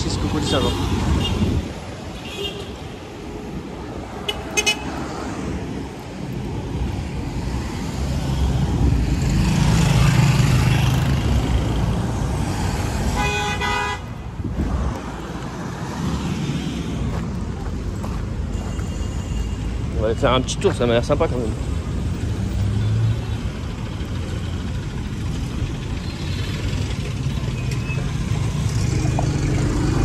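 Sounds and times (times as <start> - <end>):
busy street traffic: 0.0 - 30.0
car horn toots: 13.2 - 14.0.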